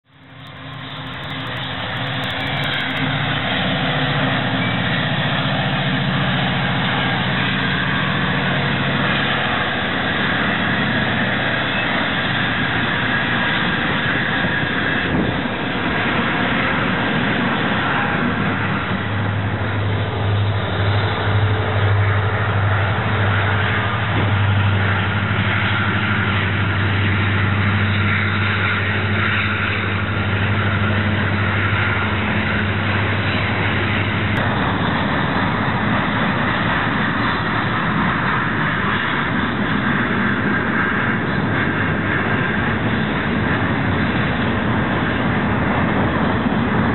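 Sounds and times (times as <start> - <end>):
locomotive engines droning: 0.0 - 46.9
train wheels on rails: 0.0 - 46.9.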